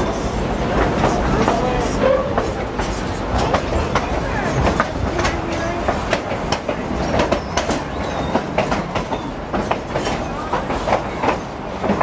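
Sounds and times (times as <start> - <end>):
train car rumbling: 0.0 - 12.0
wheels clattering on rails: 0.0 - 12.0.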